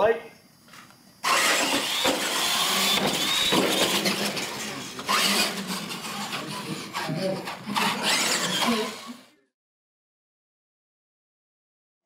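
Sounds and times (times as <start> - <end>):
toy truck motor whine: 1.2 - 9.4.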